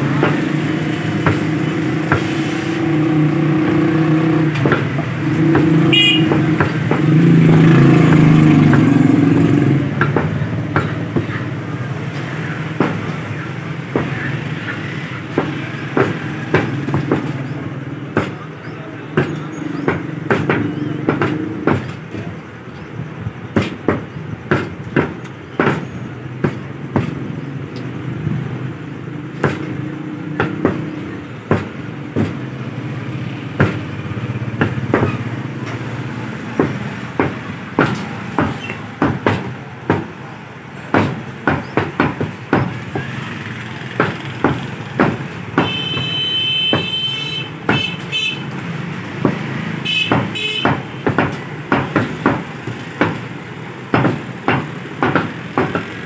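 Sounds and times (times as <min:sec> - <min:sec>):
cleaver chopping on wooden block: 0:12.2 - 0:13.2, 0:13.9 - 0:22.4, 0:23.6 - 0:27.9, 0:29.4 - 0:32.6, 0:33.6 - 0:40.2, 0:40.9 - 0:48.3, 0:49.2 - 0:53.3, 0:53.9 - 0:56.0.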